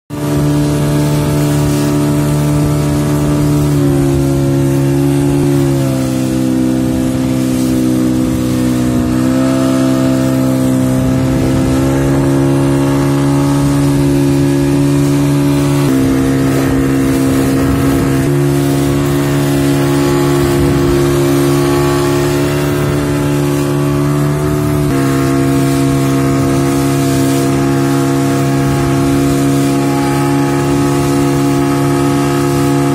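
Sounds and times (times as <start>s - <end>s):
motorboat engine drone: 0.1s - 32.9s
water rushing past hull: 0.1s - 32.9s.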